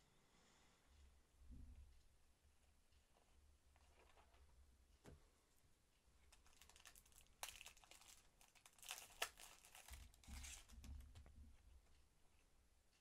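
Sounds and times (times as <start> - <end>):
card packet wrapper crinkling: 6.3 - 11.1.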